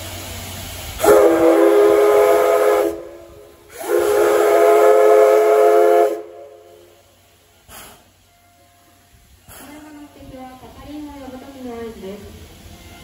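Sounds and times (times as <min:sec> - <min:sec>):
steam hissing: 0:00.0 - 0:13.0
steam whistle blasts: 0:01.0 - 0:07.0.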